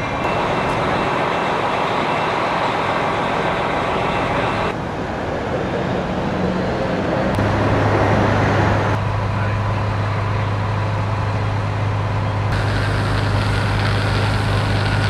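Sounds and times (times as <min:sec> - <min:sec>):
heavy vehicle engine idling: 0:00.0 - 0:05.0, 0:08.8 - 0:15.0
outdoor traffic noise: 0:00.0 - 0:15.0.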